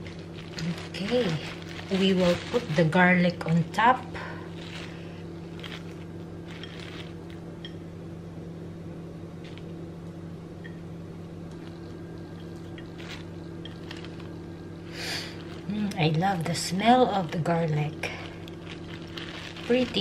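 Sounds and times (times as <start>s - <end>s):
plastic bag rustling: 0.0s - 7.6s, 9.4s - 9.7s, 11.5s - 20.0s
steady low hum: 0.0s - 20.0s
light handling sounds: 4.5s - 7.8s.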